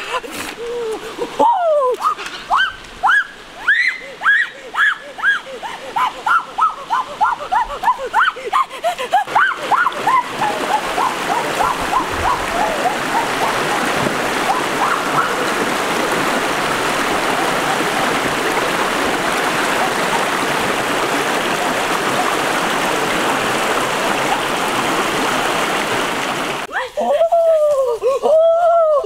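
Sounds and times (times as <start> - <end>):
stream rushing over stones: 0.0 - 26.9
feet wading through water: 4.0 - 26.7.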